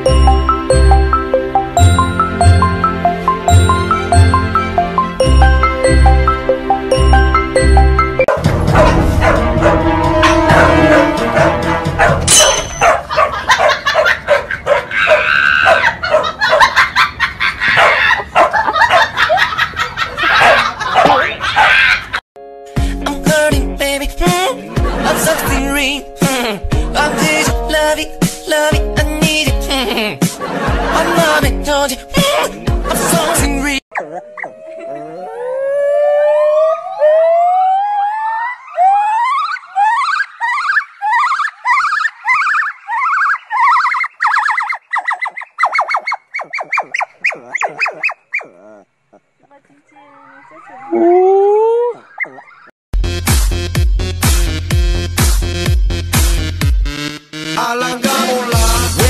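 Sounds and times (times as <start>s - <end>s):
dog yipping and whining: 14.0s - 16.3s, 33.9s - 35.2s, 38.8s - 48.9s
gibbon calling: 36.8s - 49.6s, 50.2s - 52.7s.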